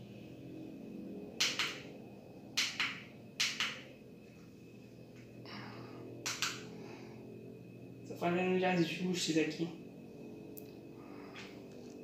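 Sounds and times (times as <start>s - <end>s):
faint high whine: 0.0s - 12.0s
low hum: 0.0s - 12.0s
sharp clicks: 1.4s - 1.9s, 2.6s - 3.9s, 6.2s - 6.7s.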